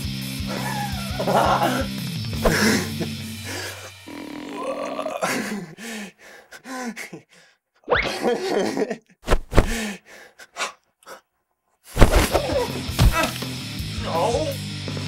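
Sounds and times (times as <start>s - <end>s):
man groaning and grunting: 0.5s - 5.8s, 12.2s - 13.4s.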